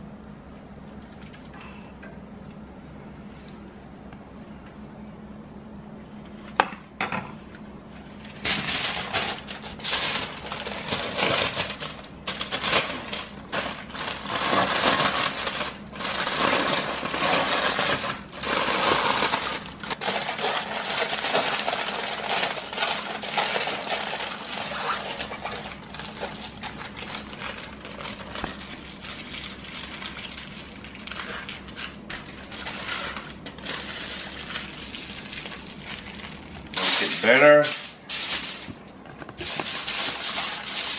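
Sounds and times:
aluminium foil crinkling: 8.2s - 40.9s.

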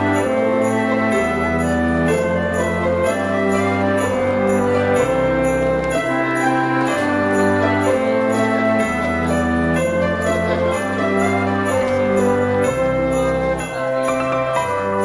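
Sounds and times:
jingling bells: 0.0s - 15.0s.

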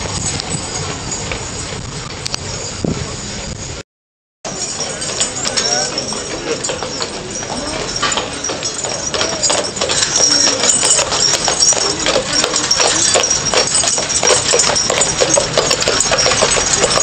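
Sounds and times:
horse hooves clopping on road: 0.0s - 2.8s, 4.5s - 17.0s
carriage and harness rattling: 4.5s - 17.0s.

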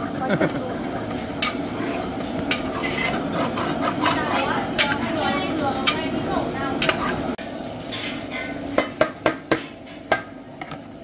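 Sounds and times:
utensil stirring in a pot: 0.0s - 10.7s
food sizzling: 0.0s - 11.0s
metal clacks against pot: 2.2s - 5.0s, 6.8s - 7.2s, 7.9s - 10.8s.

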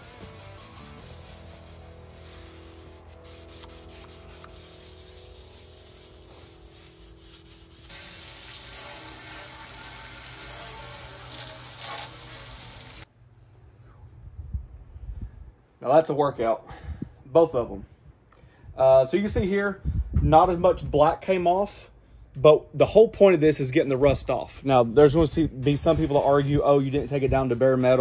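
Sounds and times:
brick scrubbing steel griddle: 0.0s - 13.1s
hose nozzle spraying water: 0.0s - 13.1s.

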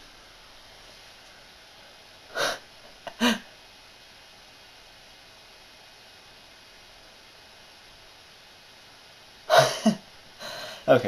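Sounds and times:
person laughing breathily: 2.4s - 3.5s, 9.5s - 10.9s.

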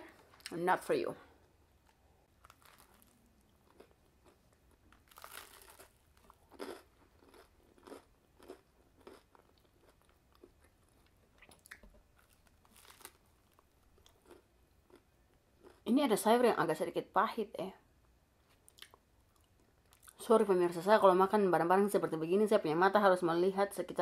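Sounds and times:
person chewing crunchy bread: 1.4s - 15.8s.

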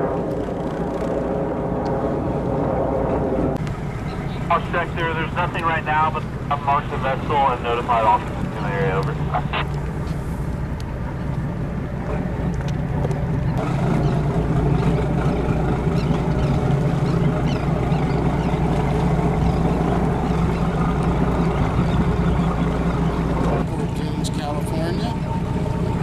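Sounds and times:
boat engines running at low speed: 0.0s - 26.0s.

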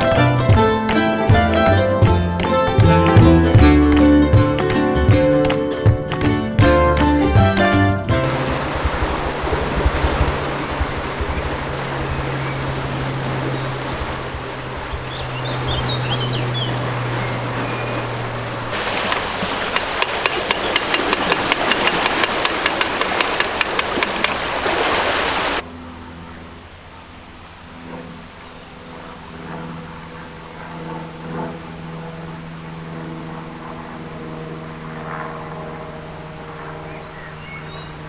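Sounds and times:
water rushing: 0.0s - 25.9s
bird chirping: 12.4s - 18.1s, 36.9s - 38.0s.

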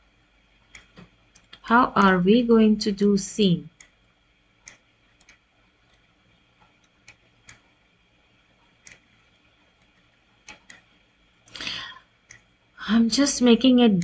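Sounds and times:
computer mouse clicks: 0.7s - 1.6s, 4.6s - 7.7s, 8.6s - 9.1s, 9.8s - 10.9s.

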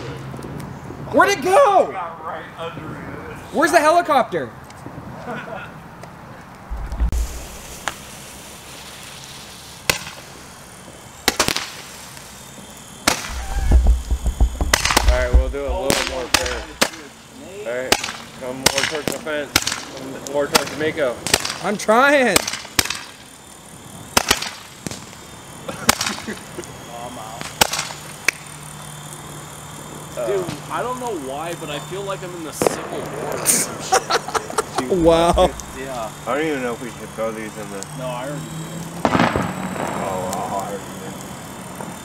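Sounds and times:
low rumble: 6.7s - 7.9s, 13.3s - 16.8s, 35.1s - 35.8s
low steady hum: 6.7s - 7.9s, 13.3s - 16.9s, 35.0s - 36.0s
fireworks bangs: 6.7s - 12.4s, 13.0s - 17.2s, 32.4s - 33.6s, 34.6s - 36.2s, 39.0s - 42.0s
roman candles popping: 13.1s - 17.0s, 35.0s - 35.9s.

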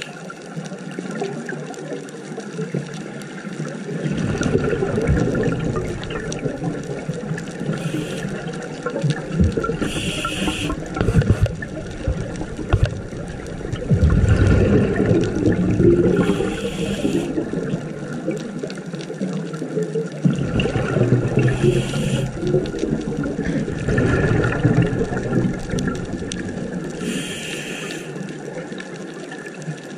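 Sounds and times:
exhaled bubbles rushing: 3.7s - 29.6s
scuba regulator inhale hiss: 7.7s - 8.5s, 9.8s - 11.5s, 16.1s - 17.4s, 21.4s - 22.4s, 27.0s - 28.3s.

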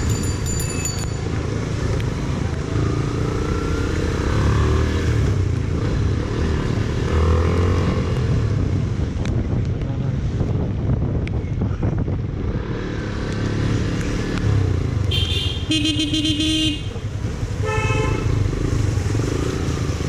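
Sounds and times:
motorcycle engine rumble: 0.0s - 20.0s
vehicle horns honking: 15.1s - 18.4s.

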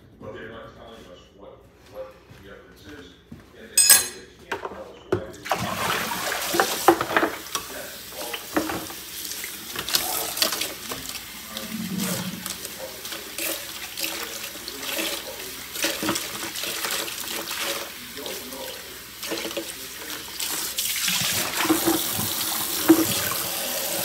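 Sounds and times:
tap water running: 5.5s - 24.0s.

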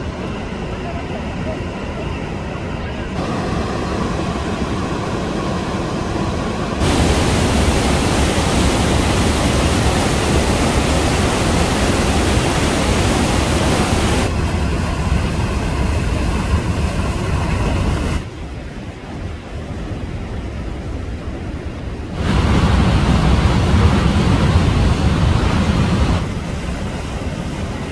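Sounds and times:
waterfall roaring: 3.2s - 18.3s, 22.1s - 27.9s.

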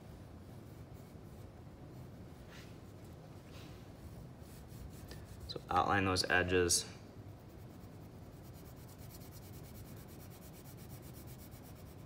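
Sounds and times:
crayon rubbing on paper: 7.3s - 12.0s.

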